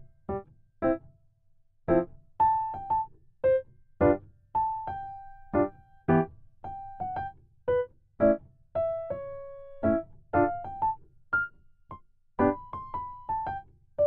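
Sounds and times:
light piano melody: 1.9 - 11.6, 12.4 - 13.7.

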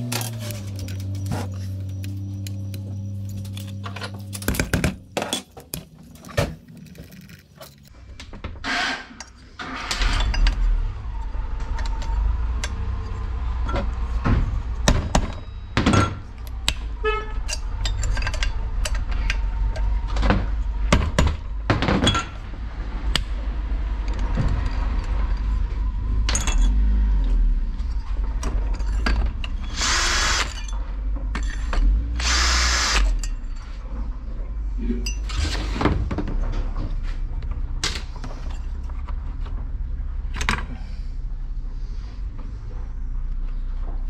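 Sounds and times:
metal parts knocking and clicking: 17.4 - 19.9
power drill-driver whirring: 29.6 - 30.6, 32.2 - 33.1.

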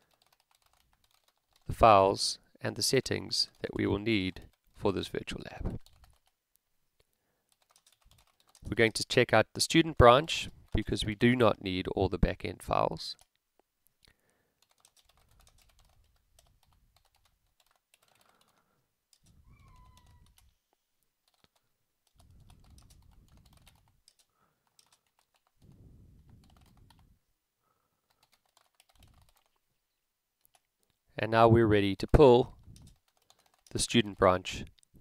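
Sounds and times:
typing on computer keyboard: 0.0 - 1.7, 5.8 - 6.4, 7.5 - 8.7, 14.6 - 20.5, 21.3 - 27.1, 28.1 - 29.6, 32.7 - 33.8.

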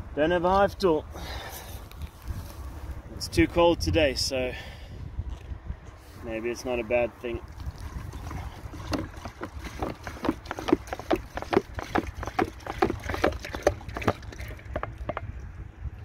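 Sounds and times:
liquid glugging from plastic bottle: 7.4 - 15.4.

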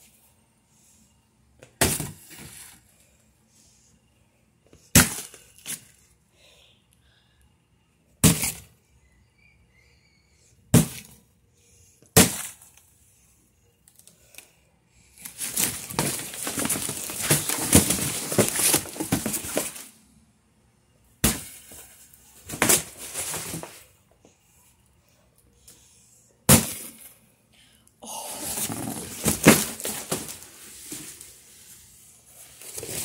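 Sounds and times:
crunching and breaking: 15.2 - 19.9.

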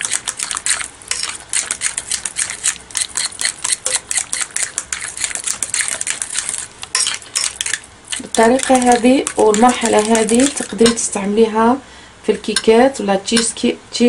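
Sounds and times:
hand whisk clicking against glass bowl: 0.0 - 11.0.

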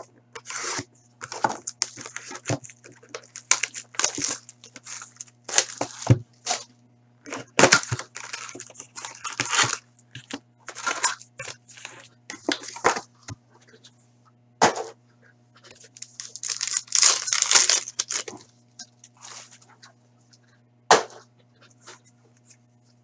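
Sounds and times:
faint electrical hum: 0.0 - 23.0
wrapping crinkling and tearing: 0.4 - 6.7, 7.5 - 12.8, 15.7 - 19.7.

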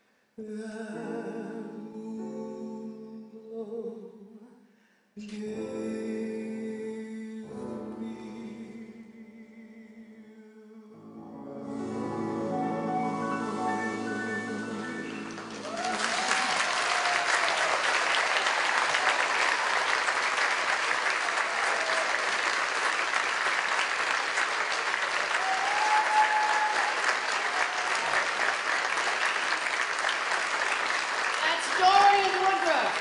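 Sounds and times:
held music chord: 11.0 - 15.6
audience applause: 15.1 - 33.0
shouted cheers: 15.5 - 20.2, 21.1 - 22.5, 25.2 - 28.6.

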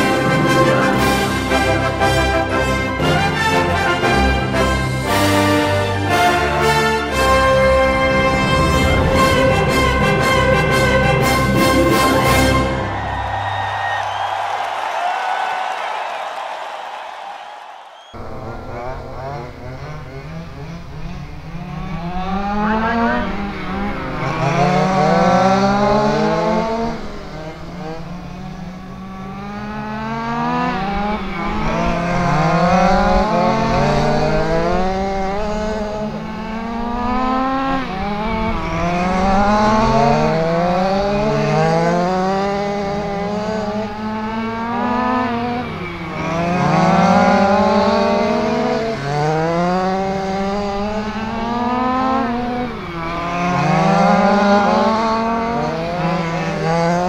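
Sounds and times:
rc car engines racing: 12.9 - 57.0.

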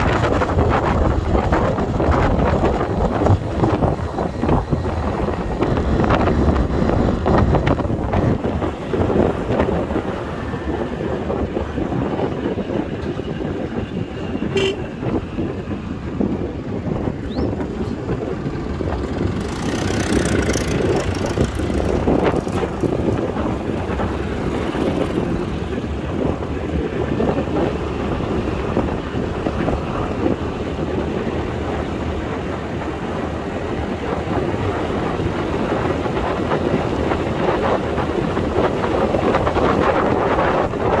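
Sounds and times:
scooter engine and tyre noise: 0.0 - 41.0
wind rushing over microphone: 0.0 - 41.0.

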